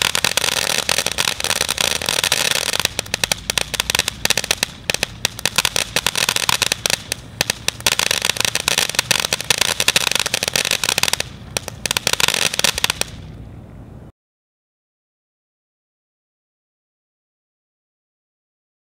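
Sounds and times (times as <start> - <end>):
firework hiss: 0.0 - 13.4
firework fountain crackling: 0.0 - 14.0.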